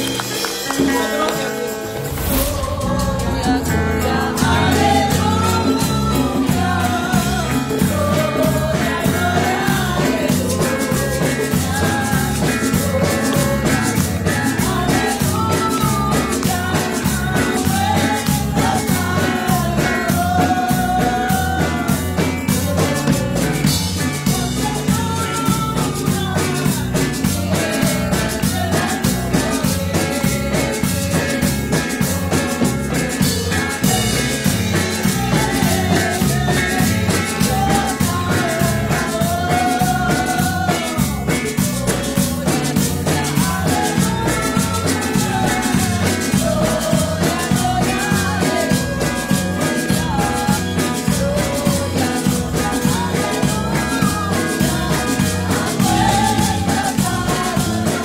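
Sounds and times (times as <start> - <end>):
steady beat: 0.0 - 21.0
electric bass guitar: 0.0 - 58.0
woman singing into microphone: 0.0 - 58.0.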